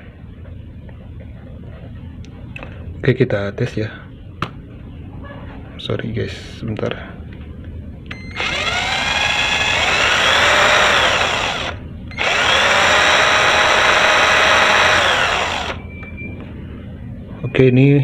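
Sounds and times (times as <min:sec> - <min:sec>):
cordless drill motor whine: 0:08.1 - 0:16.1.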